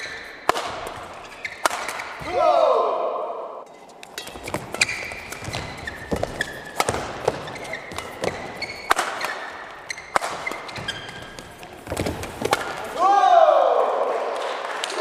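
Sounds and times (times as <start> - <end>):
rackets striking shuttlecock: 0.0 - 2.4, 3.7 - 13.0
court shoes squeaking: 0.0 - 2.5, 3.6 - 13.0.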